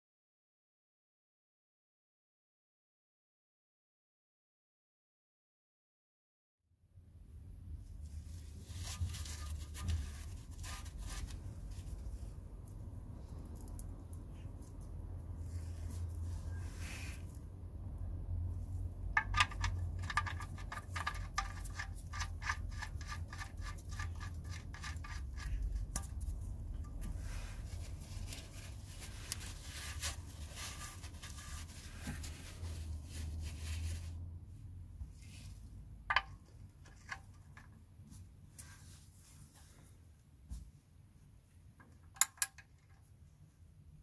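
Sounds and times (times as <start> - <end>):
metal scraping and rubbing: 19.2 - 34.2.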